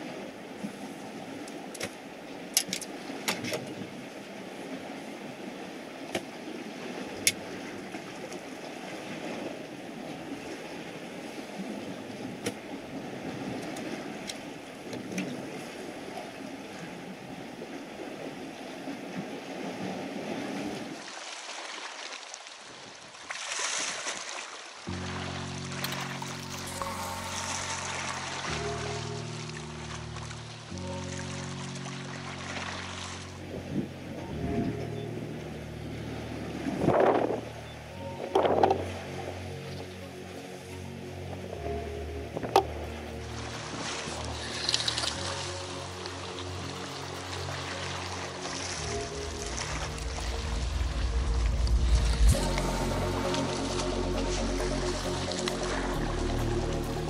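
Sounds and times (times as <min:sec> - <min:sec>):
rush of water: 0:00.0 - 0:57.0
music with held notes: 0:24.9 - 0:57.0.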